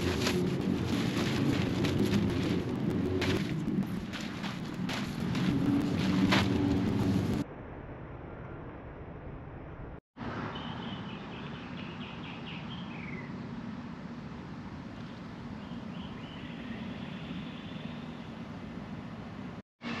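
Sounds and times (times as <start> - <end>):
engine hum: 0.0 - 7.6
birds chirping: 10.4 - 13.5, 15.0 - 18.6.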